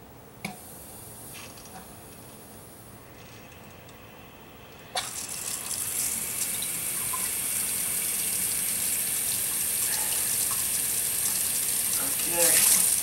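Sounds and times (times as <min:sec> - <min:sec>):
water running from faucet into sink: 0:05.0 - 0:13.0.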